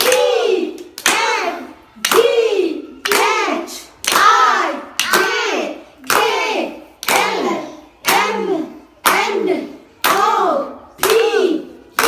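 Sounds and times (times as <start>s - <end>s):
hands clapping on the beat: 0.0s - 2.4s, 3.0s - 6.4s, 7.0s - 9.4s, 10.0s - 12.0s.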